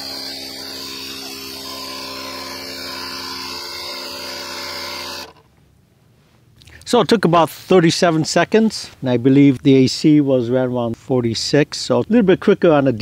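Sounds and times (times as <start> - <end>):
tire inflator compressor humming: 0.0 - 5.5.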